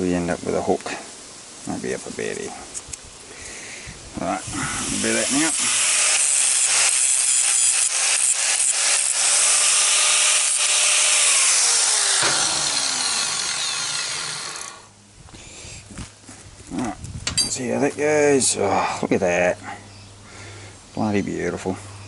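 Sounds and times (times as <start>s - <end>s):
angle grinder cutting steel: 4.8s - 14.9s.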